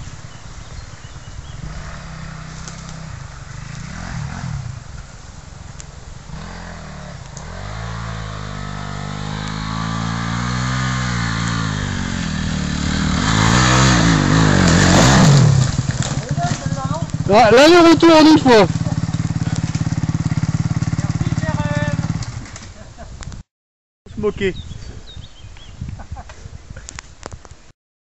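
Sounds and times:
dirt bike engine revving: 0:01.4 - 0:05.0, 0:06.2 - 0:22.6.

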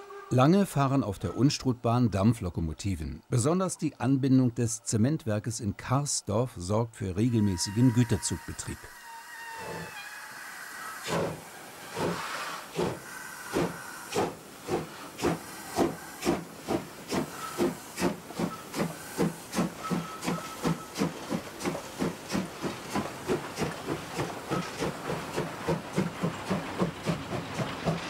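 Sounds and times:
steam hissing: 0:09.6 - 0:28.0
steam locomotive exhaust chuffs: 0:11.0 - 0:28.0.

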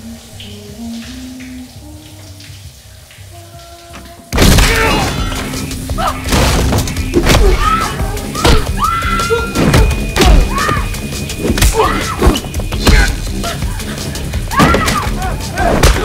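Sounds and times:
dramatic film music: 0:00.0 - 0:16.0
woman screaming: 0:07.4 - 0:09.6, 0:10.4 - 0:10.9, 0:11.7 - 0:12.2.

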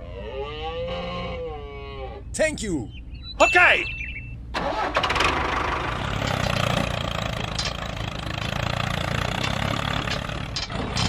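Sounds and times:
tractor engine rumbling: 0:02.3 - 0:11.0.

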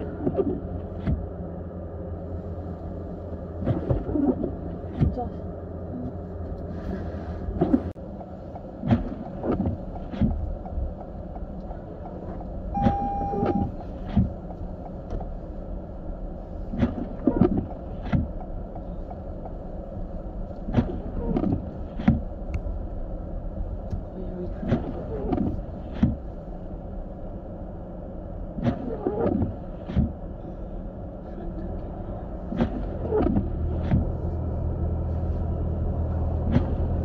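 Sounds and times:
engine and tyres rumbling: 0:00.0 - 0:37.0
short electronic beep: 0:12.8 - 0:13.7.

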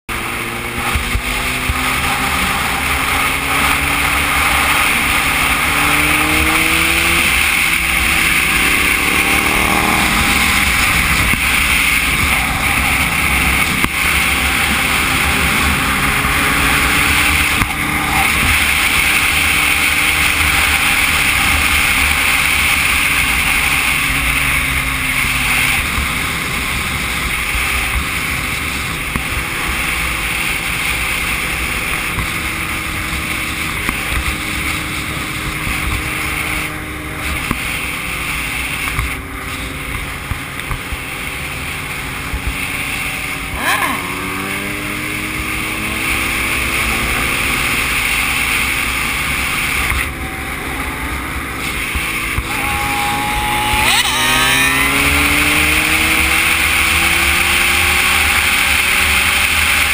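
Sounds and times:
motorcycle engine accelerating: 0:00.0 - 0:59.9
wind rush on microphone: 0:00.2 - 0:46.3.

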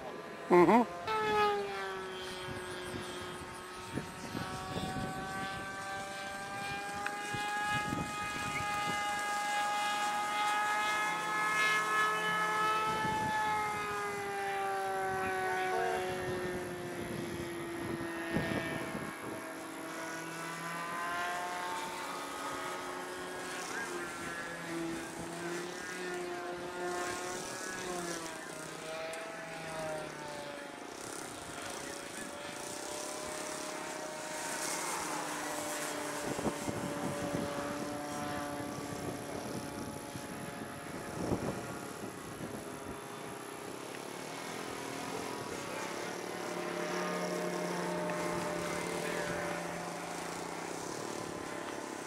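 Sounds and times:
model plane motor whine: 0:00.0 - 0:52.0
wind rumbling on microphone: 0:02.5 - 0:05.8, 0:07.2 - 0:09.2, 0:12.8 - 0:13.9, 0:16.0 - 0:19.4, 0:36.1 - 0:43.4.

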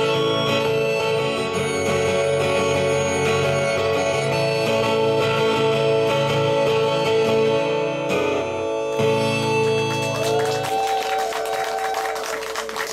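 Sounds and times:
acoustic guitars strumming: 0:00.0 - 0:10.6
harmonica long notes: 0:00.0 - 0:12.2.

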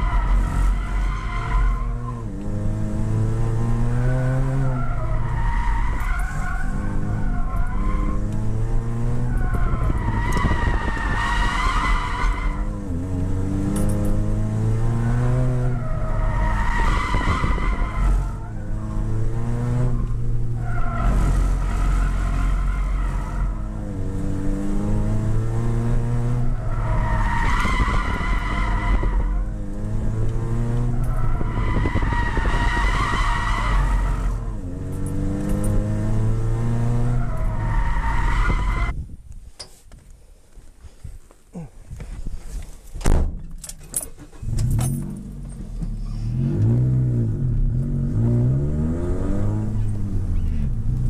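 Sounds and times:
car engine revving: 0:00.0 - 0:38.9, 0:44.2 - 0:51.0.

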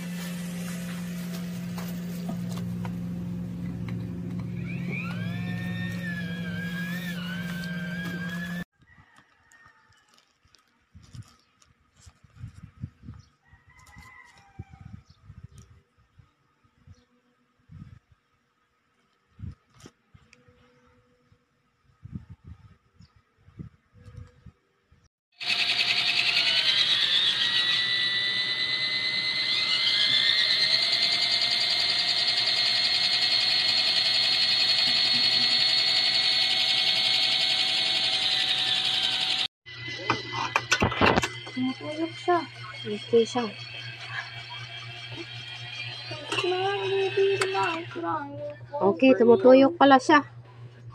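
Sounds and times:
electric motor whining: 0:00.0 - 0:08.7, 0:25.4 - 0:49.6
plastic wrapping rustling: 0:09.8 - 0:12.4.

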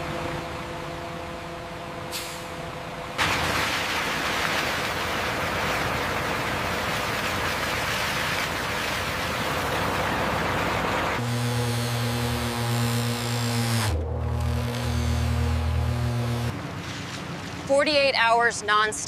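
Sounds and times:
concrete mixer trucks idling: 0:00.0 - 0:11.2
brief hiss: 0:02.1 - 0:02.6
wet concrete pouring down chute: 0:03.2 - 0:11.2.

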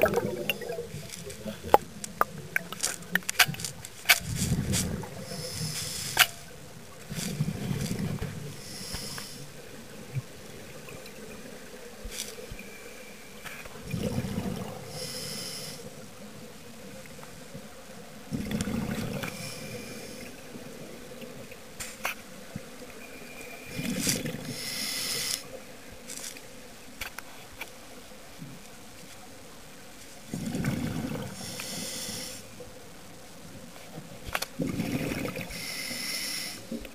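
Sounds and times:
bubbles burbling: 0:00.0 - 0:02.8, 0:13.8 - 0:14.8, 0:18.3 - 0:19.2, 0:30.3 - 0:31.4, 0:34.6 - 0:35.5
regulator air hiss: 0:05.3 - 0:06.4, 0:08.6 - 0:09.5, 0:14.9 - 0:15.9, 0:24.6 - 0:25.5, 0:31.4 - 0:32.5, 0:35.5 - 0:36.8.

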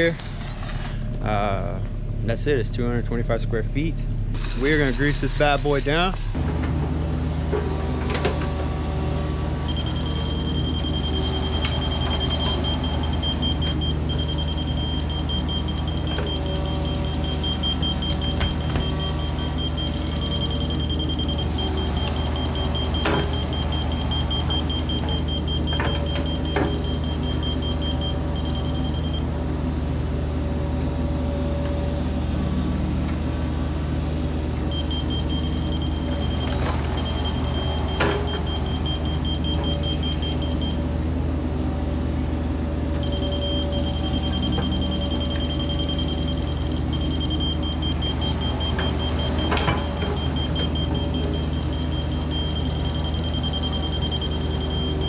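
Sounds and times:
diesel engine idling: 0:00.0 - 0:55.0
high fast-pulsing beep: 0:04.4 - 0:06.4.

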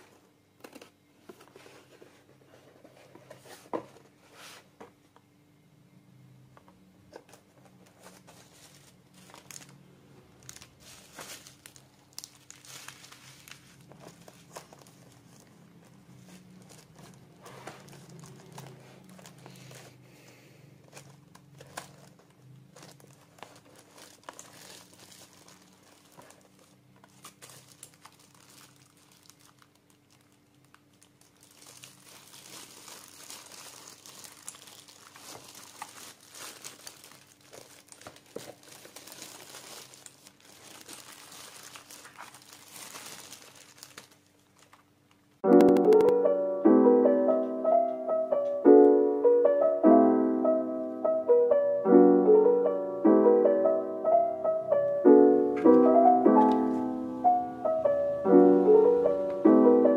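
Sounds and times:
bubble wrap crinkling: 0:07.1 - 0:20.1, 0:20.7 - 0:46.1.

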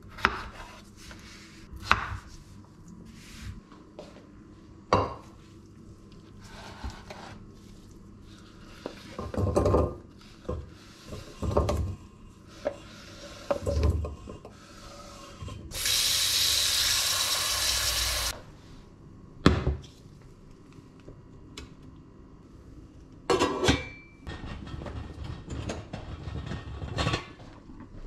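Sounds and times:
potatoes scraped across cutting board: 0:06.4 - 0:07.5
tap water running into pot: 0:15.7 - 0:18.3.

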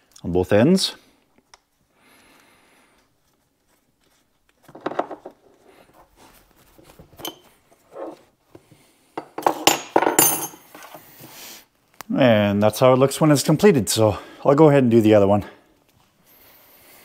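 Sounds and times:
metal hose fittings clinking: 0:07.1 - 0:08.2.

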